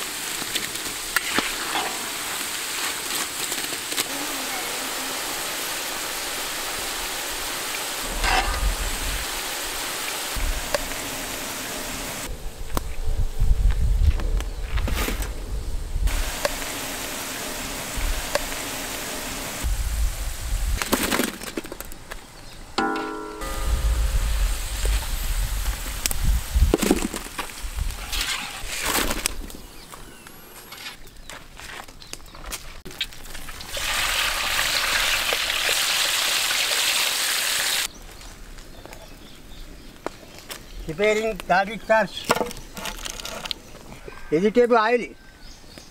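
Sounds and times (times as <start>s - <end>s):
potatoes sizzling in hot oil: 0.0s - 12.3s, 16.1s - 20.8s, 32.9s - 37.9s
low rumble: 8.0s - 9.8s, 17.9s - 20.8s, 23.4s - 26.8s.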